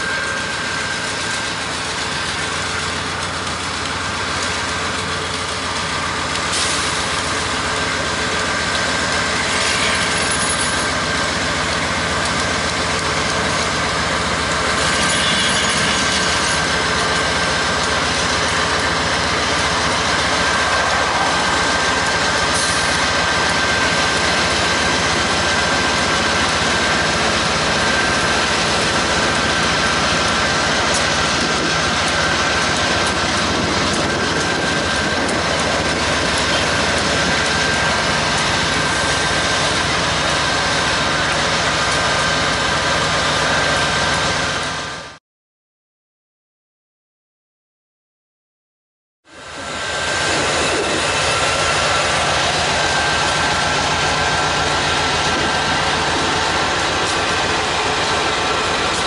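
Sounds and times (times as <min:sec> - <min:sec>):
high whine: 0:00.0 - 0:44.7, 0:49.3 - 0:59.0
diesel locomotive engines rumbling: 0:00.0 - 0:45.2, 0:49.2 - 0:59.0.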